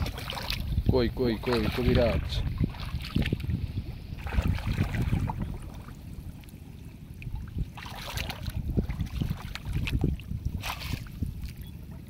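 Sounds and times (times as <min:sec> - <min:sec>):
water splashing and dripping: 0:00.0 - 0:00.8, 0:01.4 - 0:03.6, 0:07.2 - 0:11.6
wind rumbling on microphone: 0:00.0 - 0:12.0.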